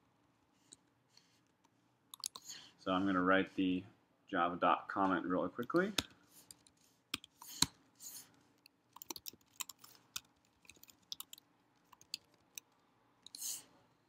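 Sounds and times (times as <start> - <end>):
keyboard typing clicks: 9.0 - 13.4.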